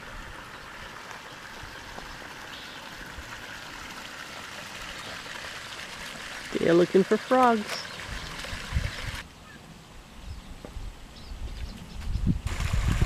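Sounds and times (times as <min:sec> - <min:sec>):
water flowing: 0:00.0 - 0:09.3, 0:12.5 - 0:13.0.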